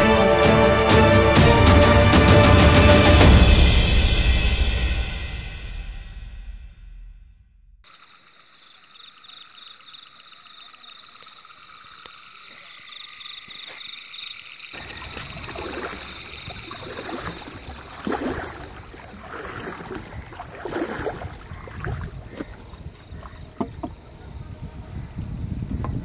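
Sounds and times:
frogs calling in chorus: 7.9s - 24.4s
water splashes: 7.9s - 24.4s.

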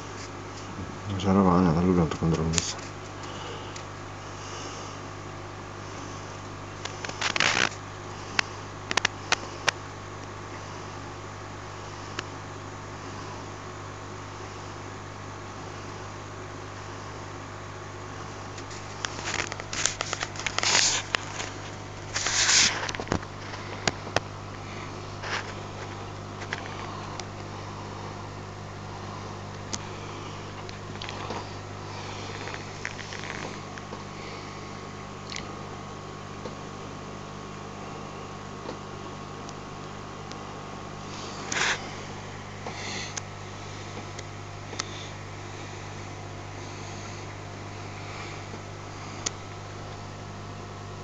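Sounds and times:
electrical hum of aquarium equipment: 0.0s - 51.0s
short rustles: 18.6s - 23.9s.

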